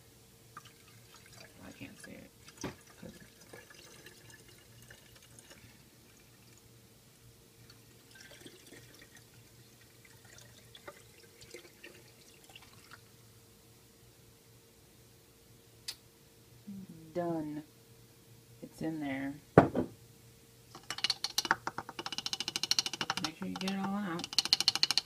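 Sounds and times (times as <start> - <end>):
liquid trickling into bottle: 7.7 - 9.3, 10.0 - 13.0
knock: 19.6 - 20.0.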